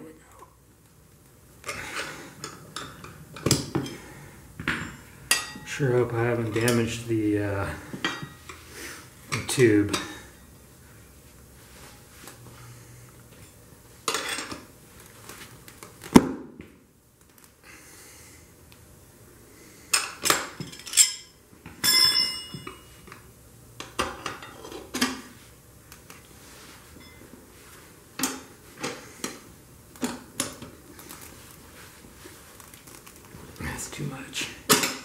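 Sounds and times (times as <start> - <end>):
tire spoons clinking on rim: 20.8 - 23.0
ringing metal clang: 21.0 - 22.8.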